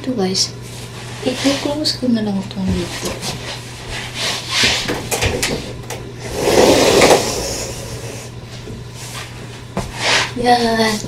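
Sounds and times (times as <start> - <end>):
sliding door sliding shut: 6.2 - 8.2.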